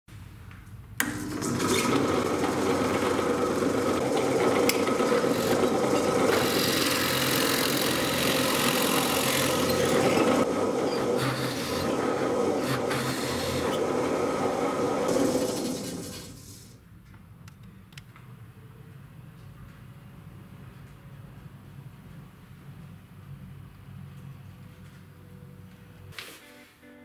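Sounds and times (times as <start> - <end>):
drill press boring into wood: 1.0 - 16.7.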